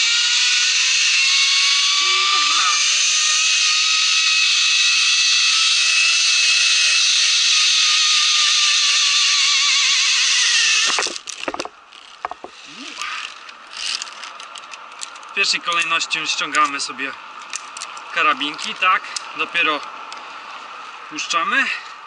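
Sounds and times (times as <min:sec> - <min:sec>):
zip-line pulley whining on cable: 0:00.0 - 0:15.2
metal hardware knocks and rattles: 0:11.0 - 0:12.5.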